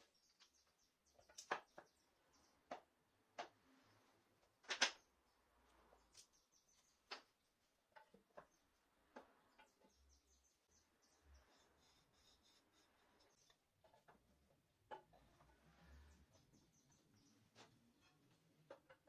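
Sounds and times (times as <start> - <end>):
wooden pegs clicking and knocking: 0.3 - 3.8, 4.4 - 5.0, 6.1 - 10.3, 13.4 - 19.0.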